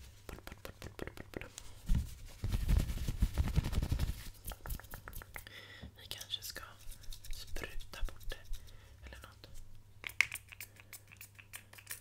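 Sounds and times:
hands rubbing microphone cover: 0.0s - 5.4s.

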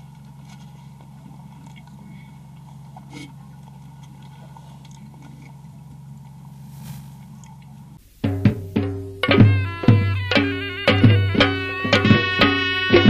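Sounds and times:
clicks and rustles of eating: 0.0s - 6.6s, 7.2s - 8.0s
low room hum: 0.0s - 10.8s.

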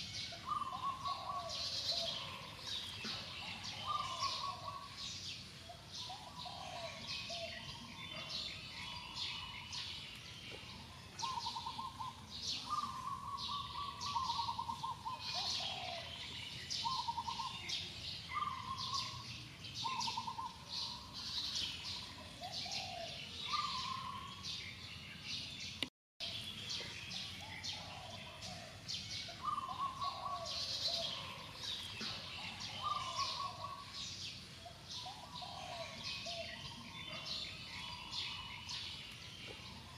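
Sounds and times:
birds chirping and calling: 0.0s - 39.9s.

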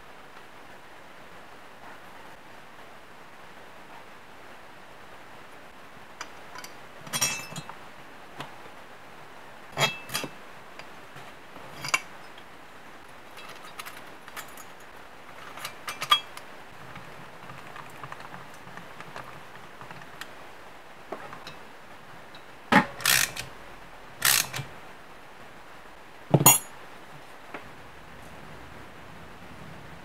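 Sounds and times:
metal parts clinking and knocking: 6.2s - 7.7s, 9.8s - 10.3s, 11.7s - 12.1s, 13.3s - 16.4s, 22.8s - 23.5s, 26.4s - 26.7s.

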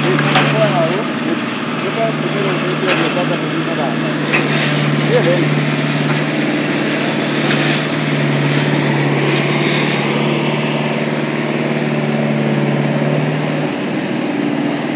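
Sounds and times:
machinery engine running steadily: 0.0s - 14.9s.

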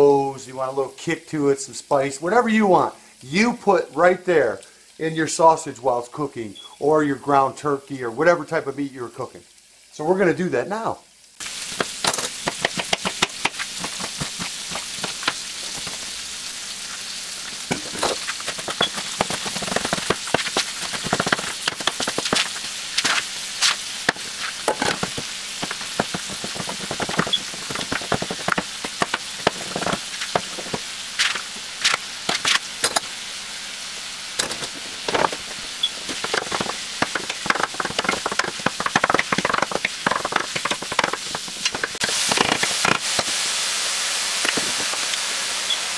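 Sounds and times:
sausage sizzling in oil: 0.0s - 45.9s
knife chopping on cutting board: 11.8s - 16.0s, 17.7s - 23.2s, 24.1s - 31.4s.

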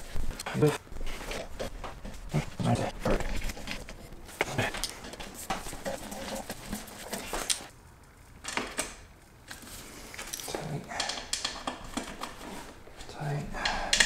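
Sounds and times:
light clicks and knocks of parts: 8.4s - 14.0s.

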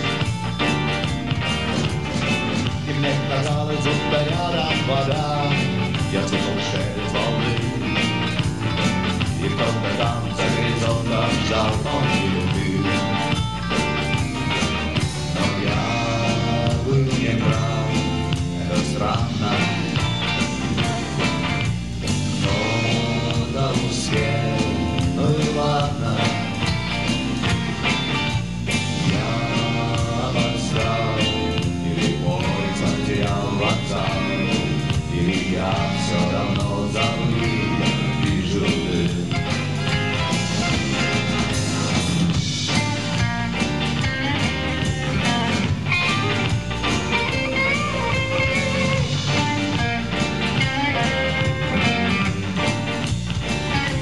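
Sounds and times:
bass and drums: 0.0s - 54.0s
electric guitars: 0.0s - 54.0s
man singing: 2.6s - 13.4s, 15.0s - 21.6s, 22.2s - 27.1s, 27.8s - 42.1s.

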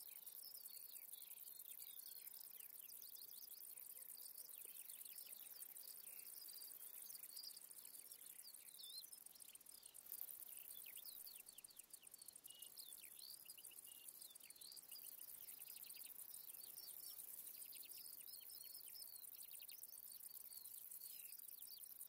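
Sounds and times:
bush-cricket high-pitched buzz: 0.0s - 22.0s.

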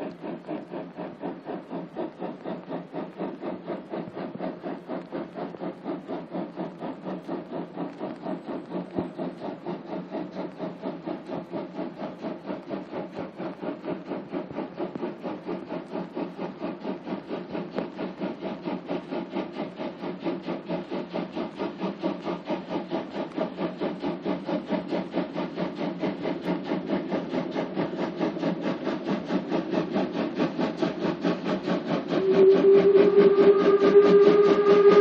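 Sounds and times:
steam locomotive chuffing: 0.0s - 35.0s
steam whistle: 32.2s - 35.0s.

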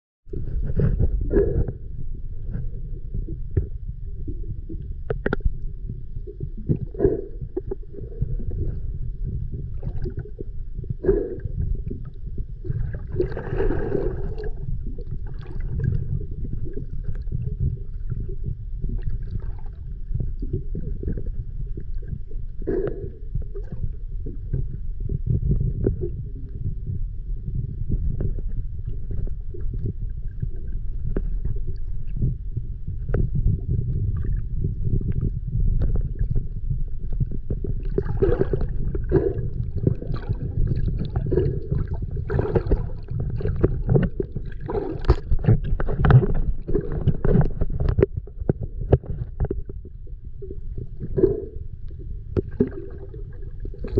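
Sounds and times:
muffled underwater rumble: 0.2s - 53.9s
water gurgling: 0.3s - 53.9s
bubbling gush: 12.6s - 23.7s, 35.8s - 49.8s.

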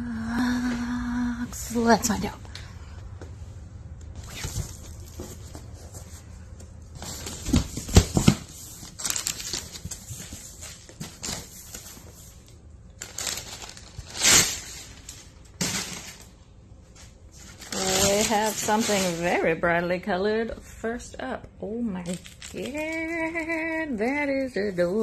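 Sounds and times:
packing paper rustling: 7.0s - 16.3s, 17.3s - 19.4s.

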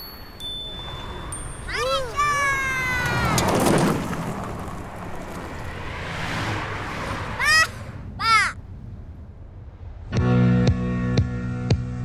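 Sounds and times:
wind and road noise: 0.0s - 12.0s
boy shouting: 1.7s - 3.6s, 7.3s - 8.6s.

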